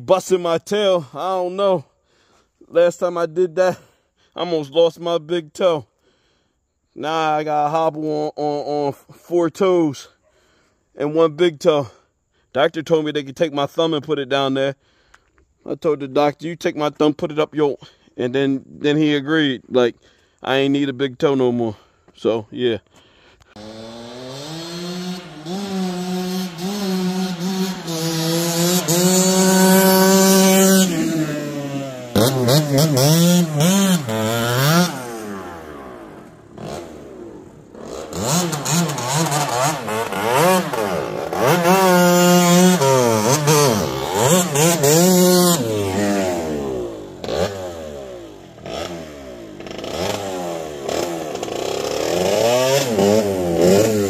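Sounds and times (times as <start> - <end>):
dirt bike engine revving: 23.5 - 54.0.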